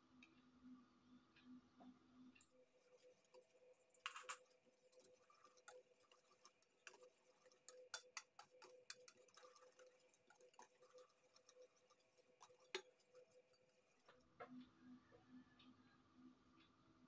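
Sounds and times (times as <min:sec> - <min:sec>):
whisk scraping metal bowl: 0:02.8 - 0:14.1.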